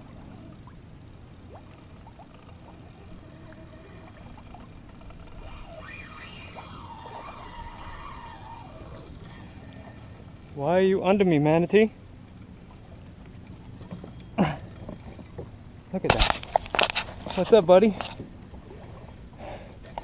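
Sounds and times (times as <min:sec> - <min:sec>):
faint wavering tones: 0:00.0 - 0:15.5
water lapping around kayak: 0:00.0 - 0:20.0
wind: 0:00.0 - 0:20.0.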